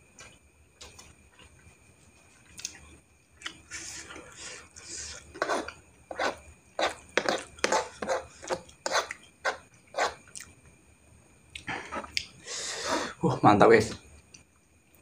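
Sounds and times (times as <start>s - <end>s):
person chewing noodles: 2.4s - 9.6s, 10.2s - 10.5s.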